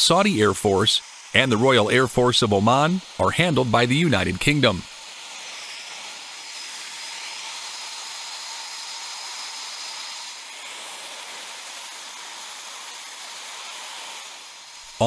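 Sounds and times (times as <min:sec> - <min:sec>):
high whine: 0:00.0 - 0:04.9
jet turbines hissing: 0:00.0 - 0:15.0.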